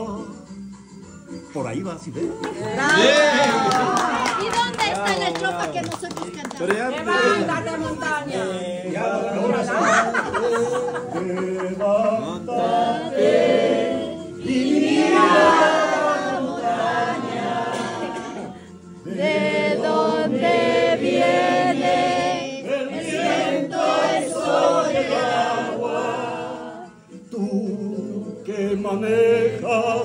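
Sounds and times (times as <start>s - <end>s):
group singing unaccompanied: 7.1s - 30.0s.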